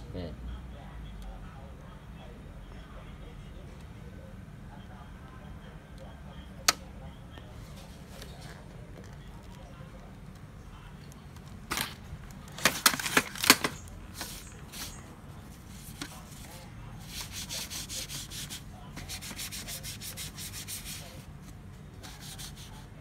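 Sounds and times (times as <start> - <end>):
paper rustling: 11.4 - 22.8
paper rasping strokes: 15.6 - 21.3, 22.0 - 22.8.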